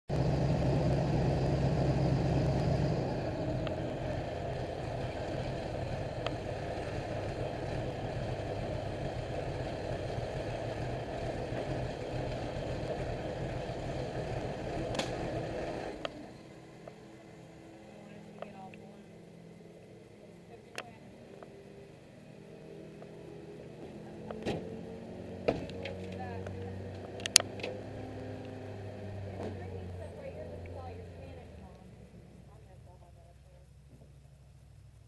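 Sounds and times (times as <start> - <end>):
airboat engine and propeller: 0.1 - 35.0
sharp clicks: 25.6 - 27.8.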